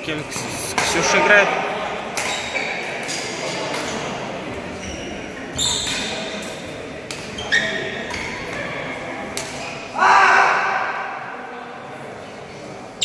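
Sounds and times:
echoing background chatter: 0.0 - 13.0
shoes squeaking on court floor: 4.7 - 6.2, 7.3 - 8.4.

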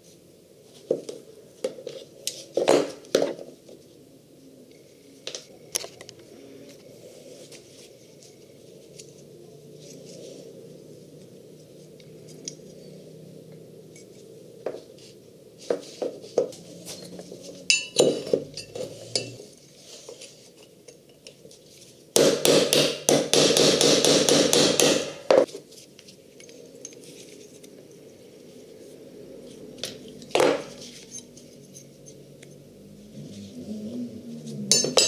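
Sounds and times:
loose metal parts clinking: 16.8 - 19.5, 34.7 - 35.0
hammer striking metal punch: 22.2 - 25.4.

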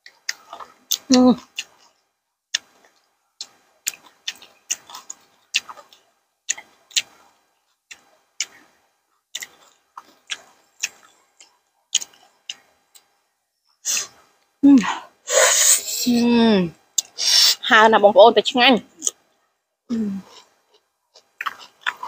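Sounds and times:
chewing crunchy food: 0.0 - 13.2, 20.2 - 22.0
wet mouth clicks: 2.6 - 7.2, 9.4 - 13.1.

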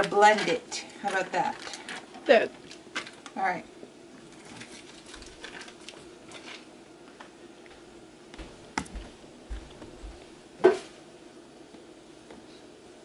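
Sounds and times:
foil wrapper crinkling: 0.4 - 3.4, 4.2 - 6.7
footsteps on kitchen floor: 7.7 - 11.0.

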